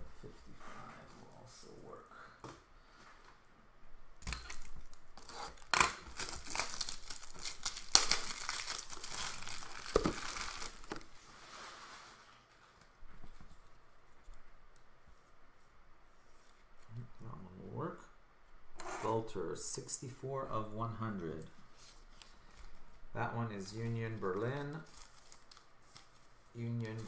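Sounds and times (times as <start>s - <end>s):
plastic packaging crinkling: 4.3s - 12.2s, 24.1s - 27.0s.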